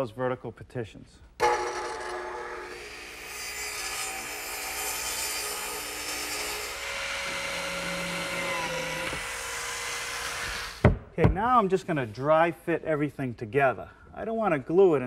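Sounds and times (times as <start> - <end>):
plate joiner motor cutting: 1.4 - 10.8
radial arm saw cutting wood: 1.4 - 10.8.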